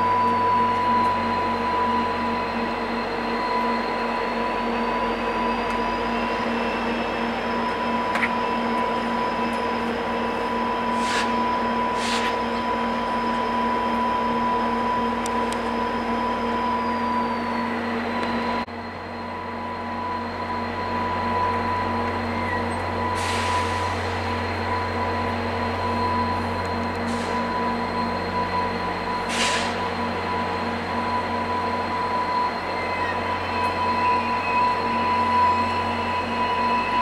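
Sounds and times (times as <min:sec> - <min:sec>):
diesel locomotive engine drone: 0:00.0 - 0:37.0
short high hisses: 0:12.0 - 0:12.4.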